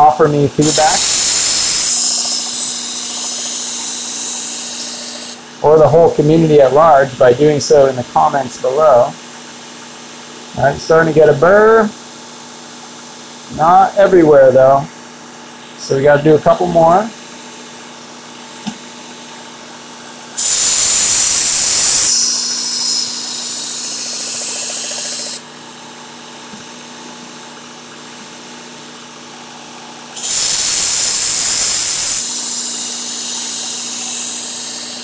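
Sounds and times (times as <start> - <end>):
belt sharpener motor hum: 0.6 - 5.4, 20.4 - 25.5, 30.2 - 35.0
knife grinding on abrasive belt: 0.6 - 5.4, 20.4 - 25.4, 30.2 - 35.0.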